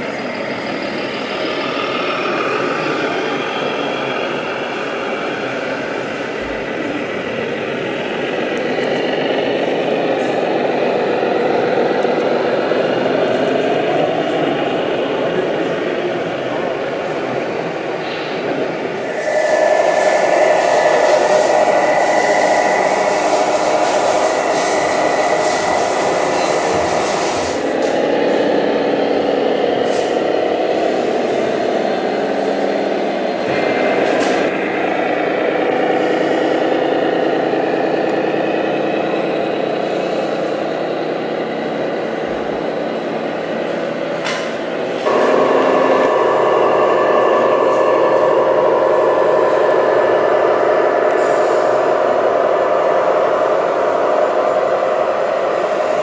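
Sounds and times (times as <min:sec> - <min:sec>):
model truck motor drone and whine: 0:00.0 - 0:56.0.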